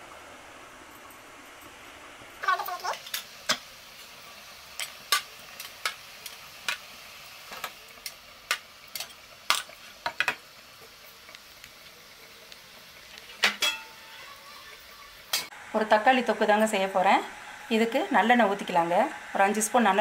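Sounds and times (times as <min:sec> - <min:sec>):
steel cups clinking on steel plate: 0:13.4 - 0:14.2.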